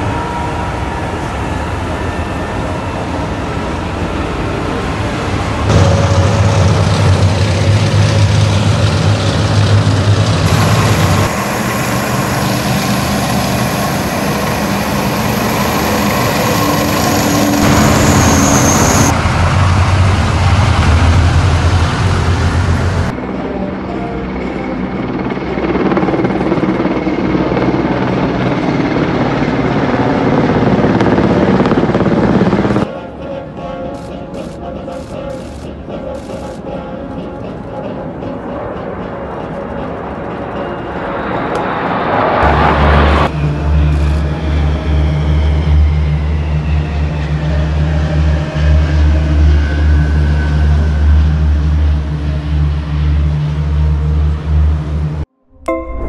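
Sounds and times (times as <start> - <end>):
helicopter rotors chopping: 0.0 - 23.1, 24.8 - 32.9
helicopter engine whine: 0.0 - 55.3.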